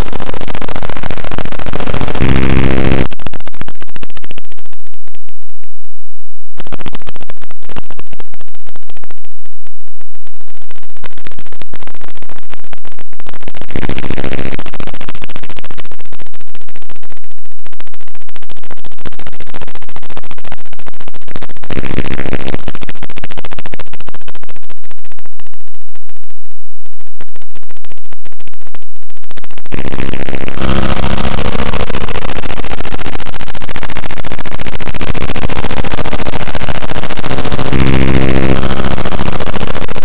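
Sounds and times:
harsh electronic noise music: 0:00.0 - 0:04.2, 0:13.4 - 0:15.7, 0:21.3 - 0:23.8, 0:29.6 - 0:40.0
buzzing tone: 0:00.0 - 0:40.0.

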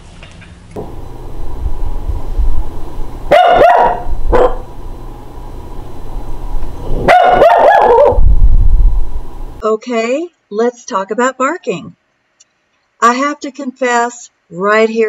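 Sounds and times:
small dog barking: 0:03.3 - 0:04.7, 0:07.0 - 0:08.2.

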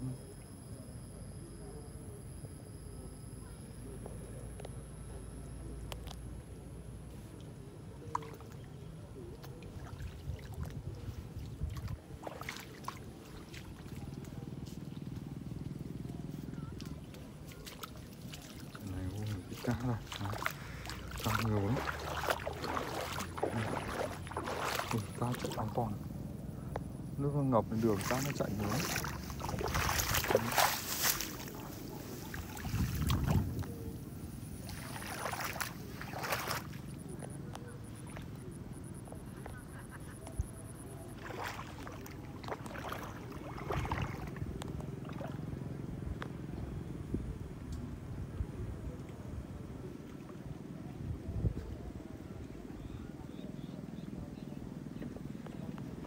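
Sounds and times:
low uneven rumble: 0:00.0 - 0:56.0
water splashing and trickling: 0:07.2 - 0:26.3, 0:27.2 - 0:37.3, 0:40.9 - 0:46.4
plants brushing and rustling: 0:27.8 - 0:33.8.

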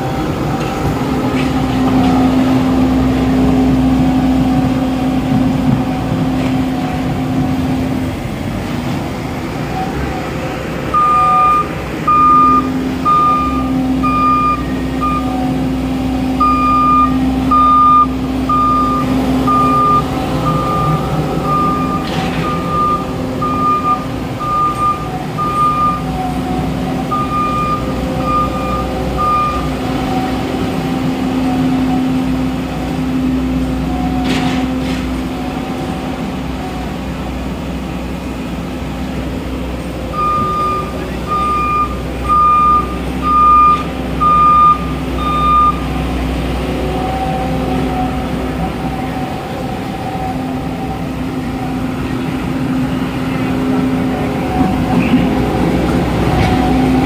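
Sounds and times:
diesel engine running: 0:00.0 - 0:57.0
backup alarm beeping: 0:10.9 - 0:30.4, 0:40.1 - 0:45.9.

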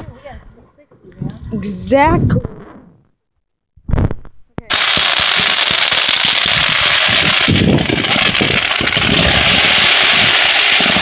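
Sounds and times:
firework fountain hissing and crackling: 0:04.7 - 0:11.0.

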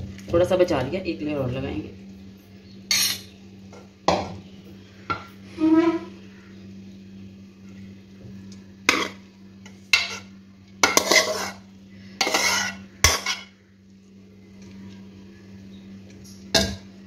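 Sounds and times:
low steady hum: 0:00.0 - 0:17.0
metal spoon scraping a pan: 0:02.9 - 0:03.3, 0:08.9 - 0:11.6, 0:12.2 - 0:13.6.

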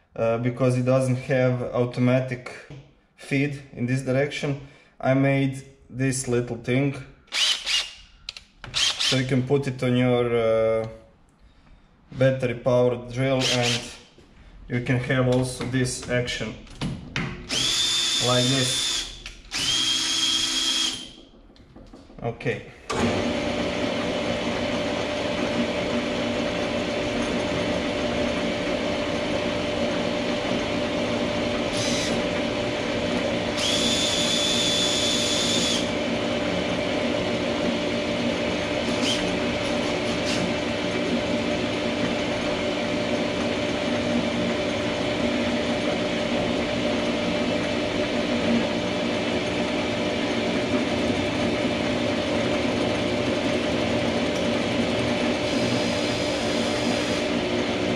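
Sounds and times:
metal lathe running: 0:07.3 - 0:07.9, 0:08.7 - 0:09.3, 0:13.4 - 0:13.9, 0:17.5 - 0:21.4, 0:22.9 - 0:57.9
cordless drill: 0:07.3 - 0:09.4, 0:13.4 - 0:14.0, 0:17.5 - 0:21.3, 0:22.9 - 0:57.9.

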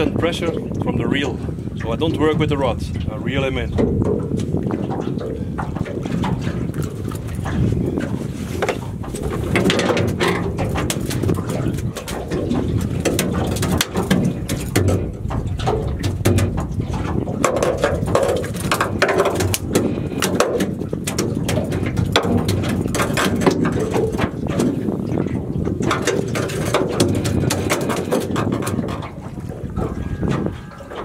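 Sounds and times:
water slapping boat hull: 0:00.0 - 0:31.0
wind rumbling on microphone: 0:00.0 - 0:31.0
knocks and clicks: 0:03.7 - 0:24.8, 0:25.6 - 0:29.2.

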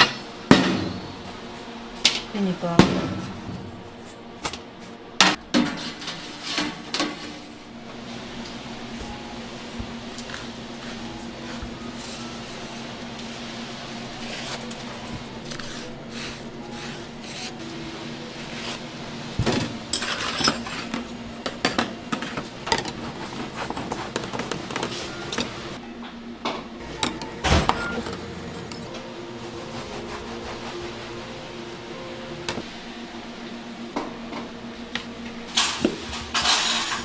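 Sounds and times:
steady machine hum: 0:00.0 - 0:37.0
parchment paper rustling: 0:14.1 - 0:17.6.

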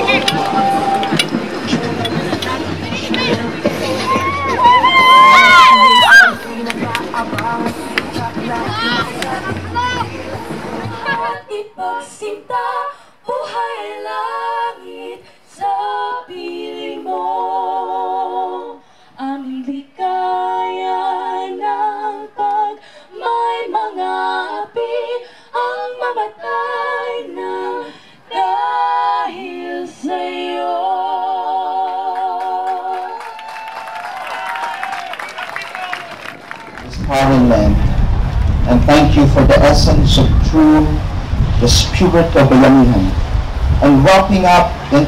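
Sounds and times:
women singing a cappella: 0:00.0 - 0:33.4.

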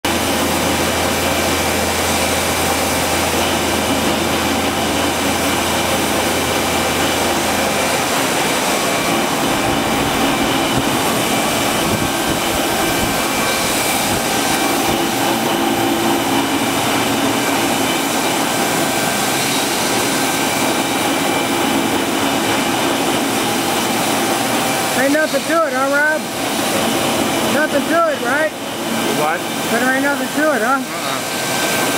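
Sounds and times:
lathe mechanical drone: 0:00.0 - 0:31.9
deep hum: 0:00.1 - 0:17.0.

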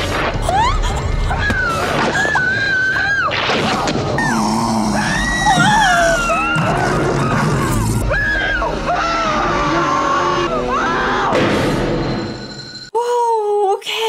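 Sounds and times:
woman screaming in terror: 0:00.4 - 0:03.4, 0:04.3 - 0:11.4
dramatic orchestral film music: 0:03.8 - 0:12.4.

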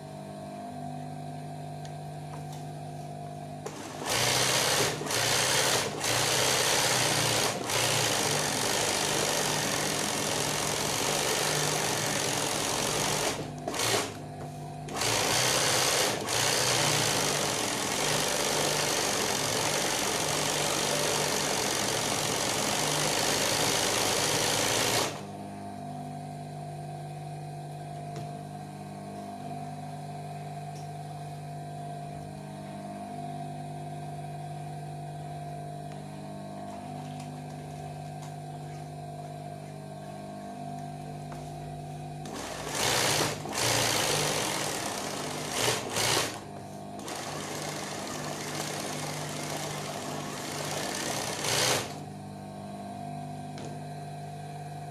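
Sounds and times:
sewing machine stitching fast: 0:03.7 - 0:14.2, 0:14.9 - 0:25.2, 0:42.2 - 0:52.0.

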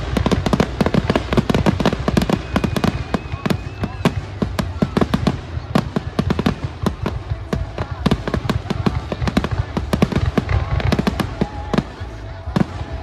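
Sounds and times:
fireworks bangs and crackles: 0:00.0 - 0:13.0
faint firework whistle: 0:01.7 - 0:05.4.

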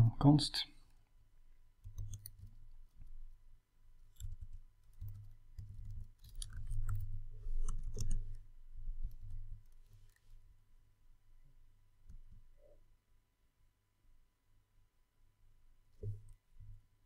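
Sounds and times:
keyboard typing clicks: 0:01.8 - 0:02.6, 0:04.1 - 0:08.4.

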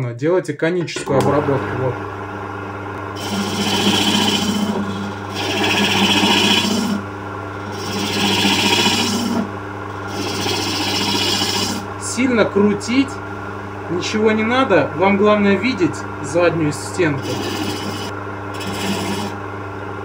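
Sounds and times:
lathe humming: 0:01.1 - 0:19.6
tool shaving spinning wood: 0:03.2 - 0:12.8, 0:16.3 - 0:19.4.

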